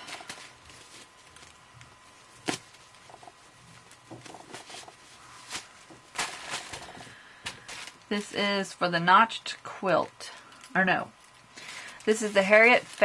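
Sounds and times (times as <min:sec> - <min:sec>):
fabric rustling: 0:00.0 - 0:08.4, 0:11.2 - 0:13.0.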